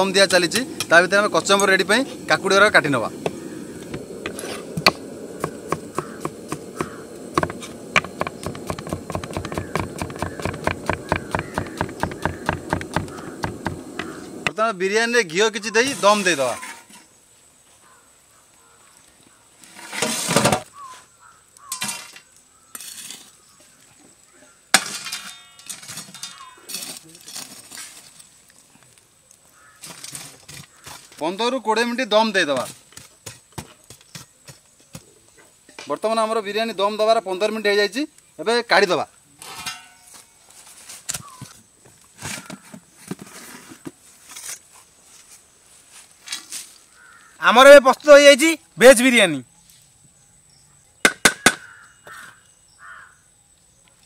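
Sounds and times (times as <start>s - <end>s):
metal lid knocks and scrapes: 3.2s - 14.6s, 39.5s - 40.1s
steel cookware scraping and clattering: 24.8s - 26.4s, 39.4s - 40.2s
sharp metallic clank: 39.4s - 40.3s.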